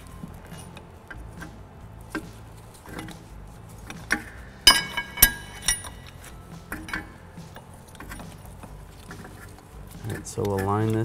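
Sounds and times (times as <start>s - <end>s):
metal tool clinking and knocking: 3.8s - 11.0s
loud ringing metal strikes: 4.6s - 6.0s.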